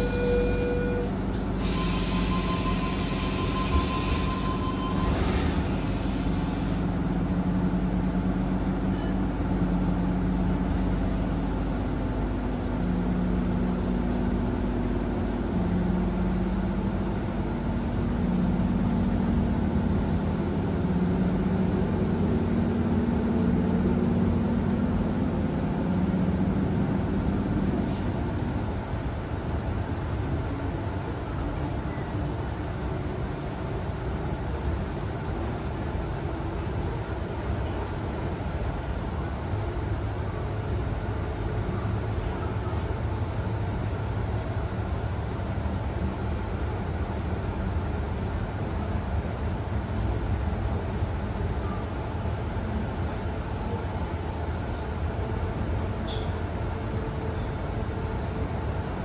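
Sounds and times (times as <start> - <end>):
train motor hum: 0.0 - 31.8
train running rumble: 0.0 - 59.0.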